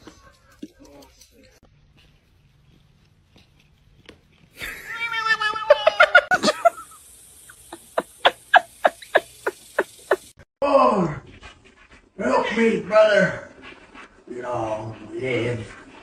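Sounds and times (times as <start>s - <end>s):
person laughing: 4.6s - 10.3s
cat meowing: 4.7s - 6.1s.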